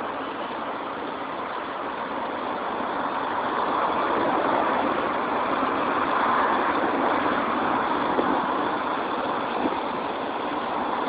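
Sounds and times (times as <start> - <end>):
steel wheels on rails: 0.0 - 11.0.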